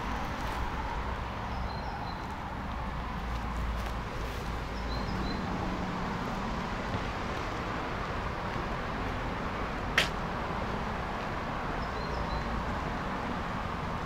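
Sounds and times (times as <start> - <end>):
outdoor background noise: 0.0 - 14.0
sharp click: 10.0 - 10.2.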